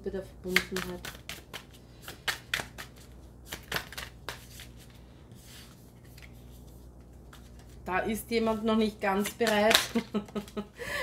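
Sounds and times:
cards shuffling and clicking: 0:00.5 - 0:07.8, 0:09.2 - 0:10.6.

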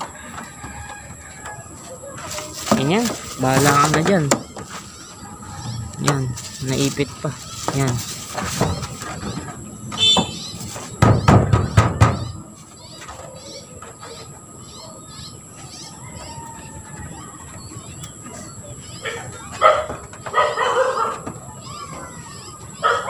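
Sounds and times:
bird chirping: 0:00.0 - 0:23.0
hands scuffing on metal roof sheet: 0:01.7 - 0:05.1, 0:06.1 - 0:13.3.

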